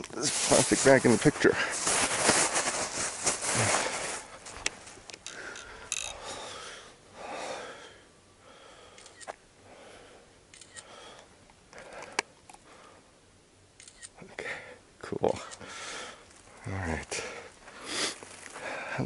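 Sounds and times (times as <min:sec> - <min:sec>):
footsteps crunching on dirt trail: 0:00.2 - 0:06.4, 0:17.2 - 0:19.0
rustling gear: 0:00.2 - 0:06.4.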